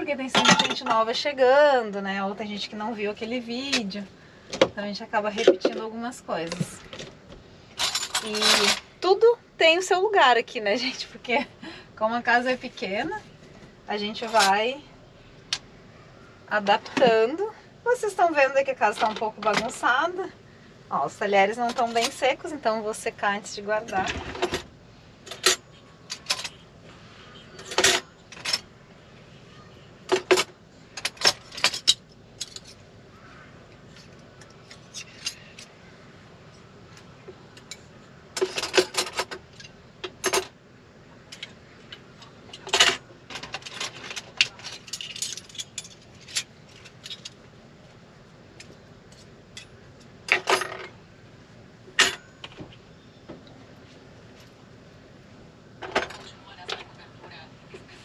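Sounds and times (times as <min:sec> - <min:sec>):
metal cutlery clinking: 0:42.6 - 0:47.4.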